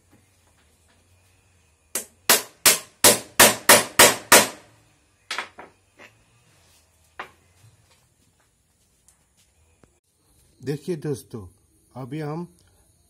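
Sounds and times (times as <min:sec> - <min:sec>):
hammer striking steel: 0:02.0 - 0:04.6.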